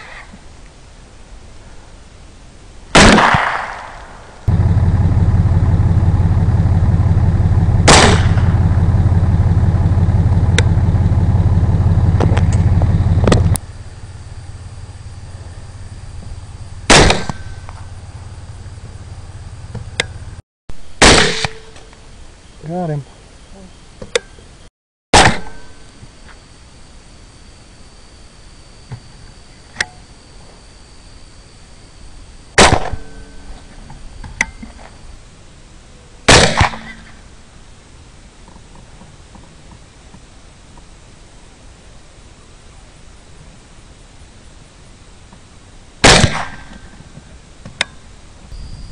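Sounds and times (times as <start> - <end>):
sharp crack: 2.9 - 9.6, 16.9 - 18.0, 21.0 - 22.0, 25.1 - 25.7, 32.6 - 33.2, 36.3 - 37.2, 46.0 - 46.9
rifle shots with echo: 3.0 - 4.6, 7.8 - 9.1, 16.9 - 17.7, 21.0 - 21.7, 32.6 - 33.2, 36.3 - 37.1, 46.0 - 46.8
vehicle engine idling: 4.5 - 20.4.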